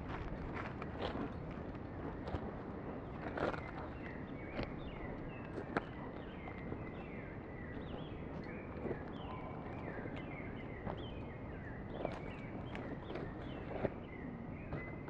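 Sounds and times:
birds chirping: 3.0 - 15.0.

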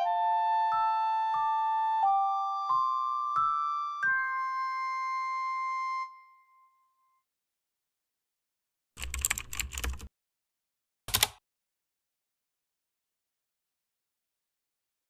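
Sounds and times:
computer keyboard key clicks: 9.0 - 10.1, 11.1 - 11.4.

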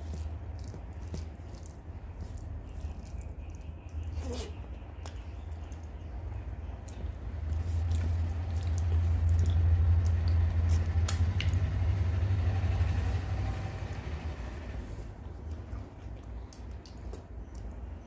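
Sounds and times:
fingers squishing food on plate: 0.0 - 11.7
wet chewing: 0.0 - 11.7, 15.2 - 18.0
low rumble: 7.2 - 16.0.

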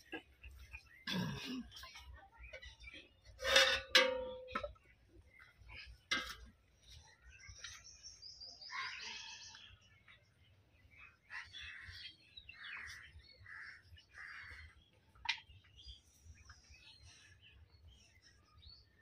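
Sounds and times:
faint bird calls: 6.9 - 10.2, 10.9 - 18.5.

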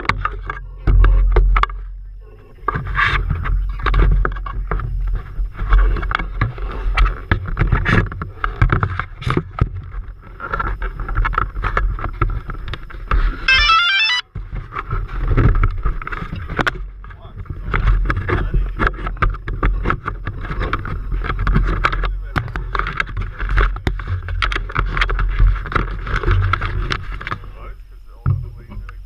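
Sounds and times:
drone motor noise: 0.1 - 29.0
stepped electronic beeps: 13.5 - 14.2.

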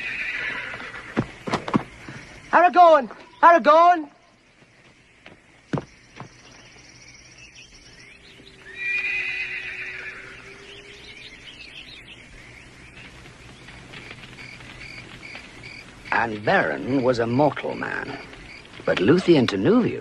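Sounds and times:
horse whinnying: 0.0 - 1.3, 8.6 - 11.1.

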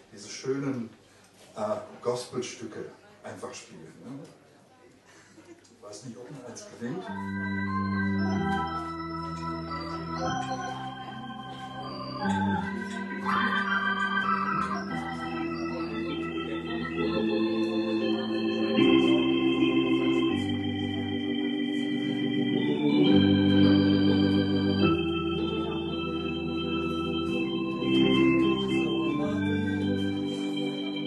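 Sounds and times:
organ playing gospel chords: 7.1 - 31.0.

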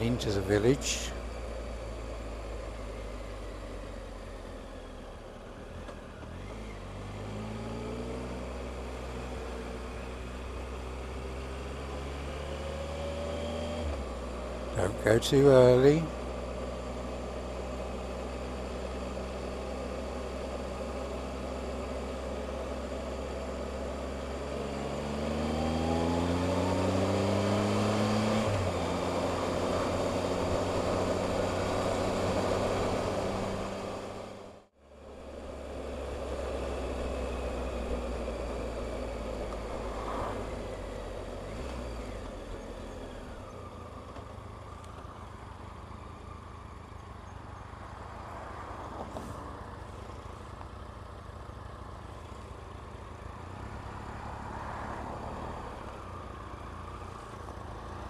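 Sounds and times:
motorcycle engine: 0.0 - 58.0
wind and road noise: 0.0 - 58.0.

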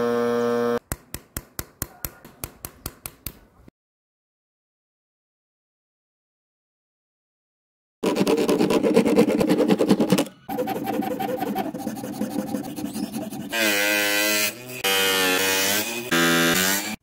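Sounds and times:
plastic rubbing on sandpaper: 8.0 - 14.0
filing strokes on plastic: 8.0 - 15.9.

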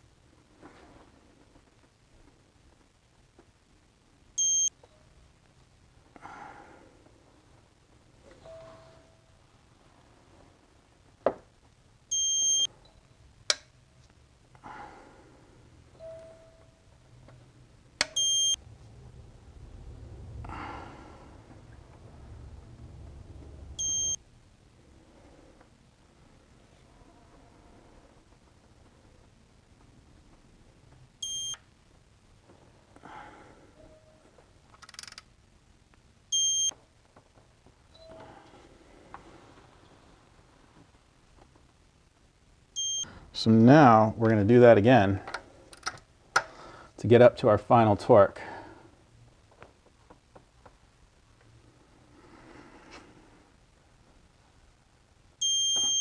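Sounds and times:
faint rustling and scraping: 0.3 - 3.5, 6.8 - 11.8, 36.9 - 42.3
high electronic beep: 4.4 - 4.7, 23.8 - 24.2, 36.4 - 36.7
high electronic beeps: 23.8 - 24.2
sharp wrench clicks: 34.8 - 35.3.

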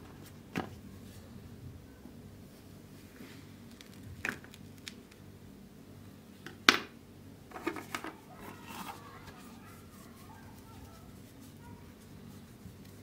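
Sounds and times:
plastic tools tapping: 7.5 - 8.9.

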